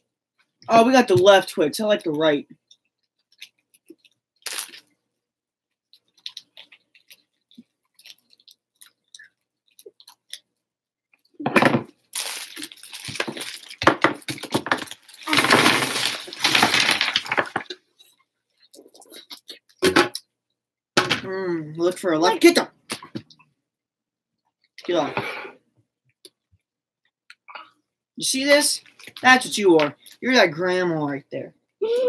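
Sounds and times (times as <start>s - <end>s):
wrapped candy crinkling: 3.2s - 4.9s, 6.0s - 10.5s, 12.0s - 17.8s.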